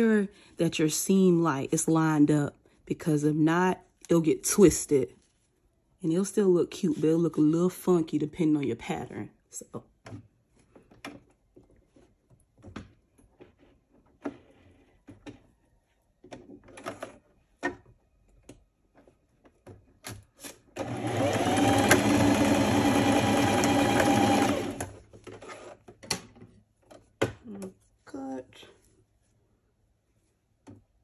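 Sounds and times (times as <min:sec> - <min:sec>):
sewing machine stitching: 0:20.8 - 0:25.8.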